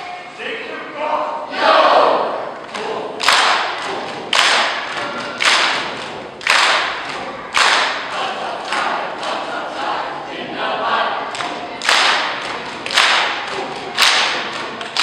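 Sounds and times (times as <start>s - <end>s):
hand claps in unison: 2.7s - 9.4s, 11.3s - 15.0s.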